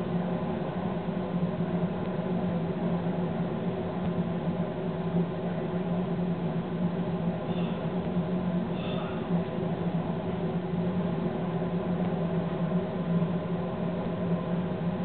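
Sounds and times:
train locomotive droning: 7.1s - 15.0s.

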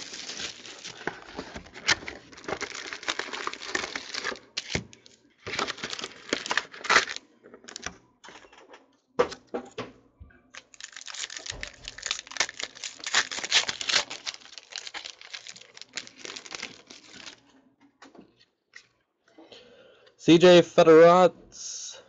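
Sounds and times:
foil wrapper crinkling and tearing: 0.0s - 7.9s, 10.6s - 17.4s.

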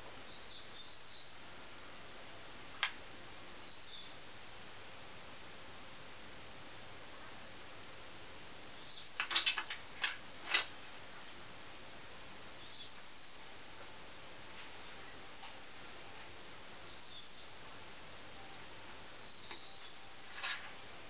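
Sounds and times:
background hiss: 0.0s - 21.0s
small parts clicking: 9.2s - 10.7s
faint bird chirps: 12.6s - 13.8s, 16.8s - 18.6s, 19.2s - 20.6s.

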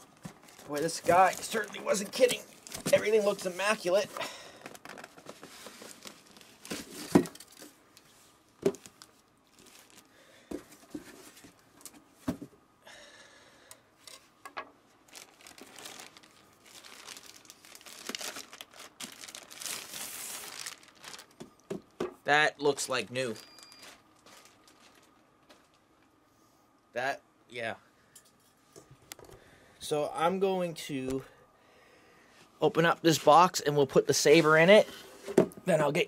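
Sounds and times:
packaging crinkling and rustling: 0.0s - 12.0s, 15.0s - 21.9s, 22.7s - 26.1s.

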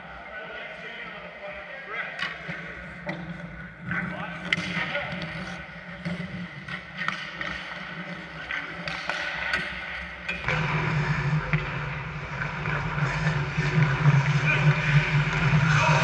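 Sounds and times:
hockey sticks and puck clacking: 2.1s - 11.8s, 12.4s - 16.0s
low rumble: 10.4s - 16.0s.

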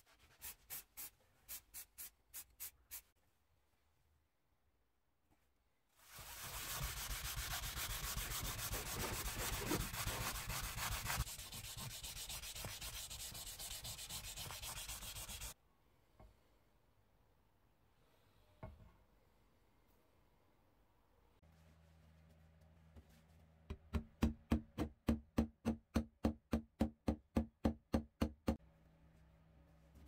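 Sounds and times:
abrasive block sanding metal: 6.2s - 15.6s.

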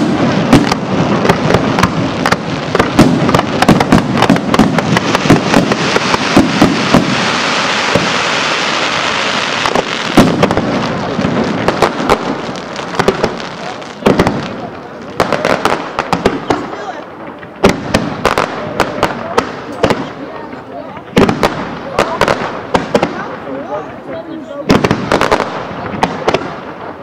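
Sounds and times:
fireworks shells bursting: 0.0s - 13.4s
fireworks crackling: 0.0s - 27.0s.

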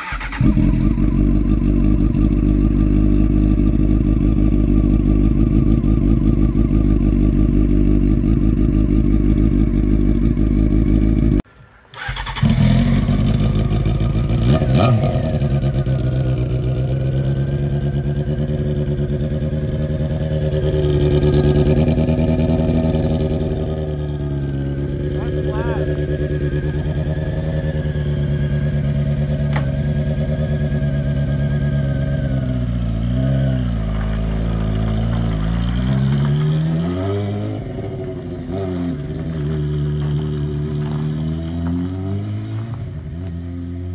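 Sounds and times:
motorcycle engine idling: 0.0s - 11.4s, 12.0s - 33.2s
motorcycle engine revving: 0.0s - 43.9s.

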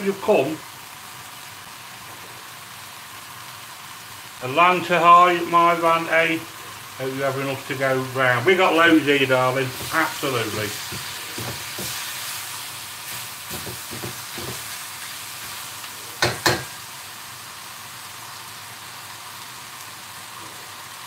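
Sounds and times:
stir-fry sizzling in a wok: 0.0s - 21.0s
utensils scraping a wok: 9.7s - 16.8s
sharp knocks: 16.2s - 16.7s.

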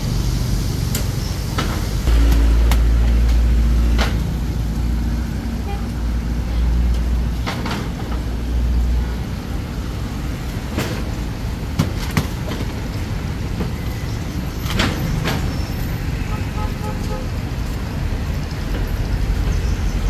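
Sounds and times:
roadside noise hiss: 0.0s - 20.0s
vehicle rumbling past: 2.0s - 10.4s.

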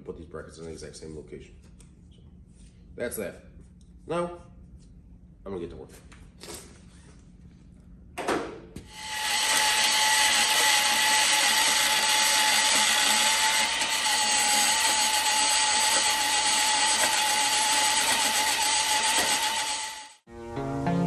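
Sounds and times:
band saw cutting steel: 8.9s - 20.2s.

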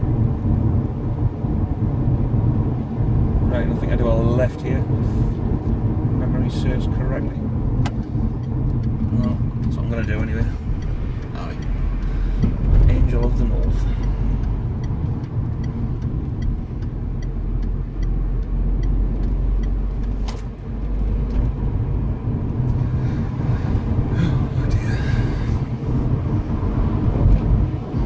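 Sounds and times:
car cabin road rumble: 0.0s - 28.0s
light regular ticking: 6.4s - 22.9s.

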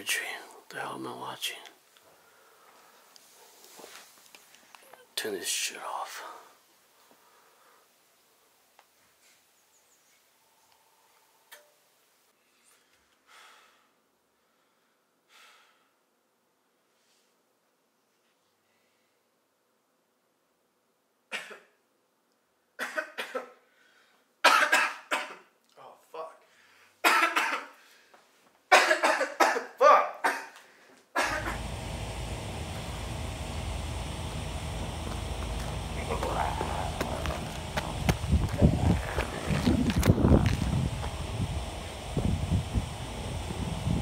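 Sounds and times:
heavy breaths out: 12.7s - 16.0s
man coughing harshly: 21.3s - 21.8s, 22.8s - 23.6s, 24.4s - 25.5s, 27.0s - 27.8s, 28.7s - 30.6s, 31.2s - 31.6s
low rumble: 31.3s - 44.0s
outdoor background rush: 31.3s - 44.0s.

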